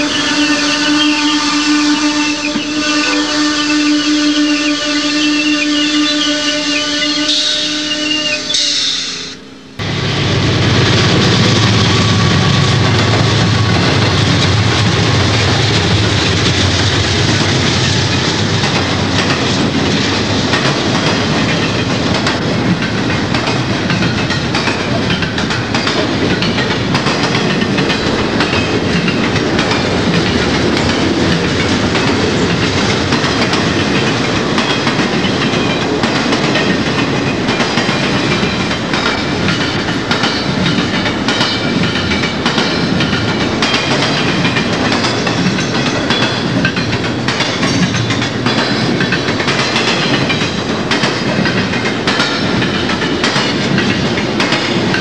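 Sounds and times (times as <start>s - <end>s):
train wheel and rail noise: 0.0s - 55.0s
locomotive engine hum: 9.4s - 55.0s
clicking over rail joints: 15.4s - 55.0s.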